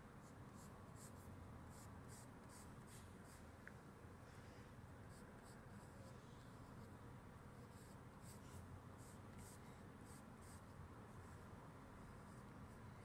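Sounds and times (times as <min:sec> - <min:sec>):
pencil scratching on paper: 0:00.6 - 0:03.4, 0:05.1 - 0:06.9, 0:07.5 - 0:11.4.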